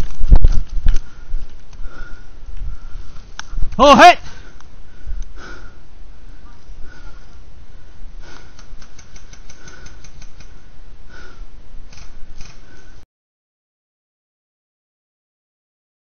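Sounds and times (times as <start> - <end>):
small clicks: 8.3 - 10.6.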